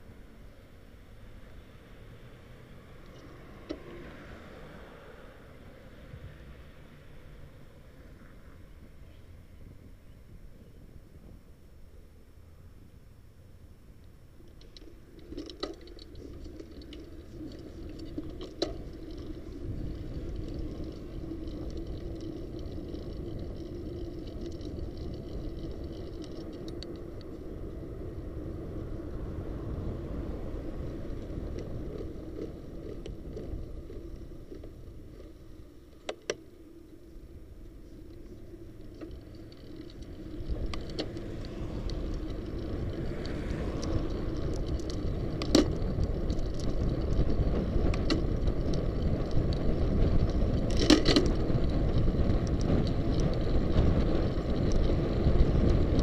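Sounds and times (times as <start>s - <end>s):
bicycle wind and road noise: 0.0s - 56.0s
wind on microphone: 15.0s - 56.0s.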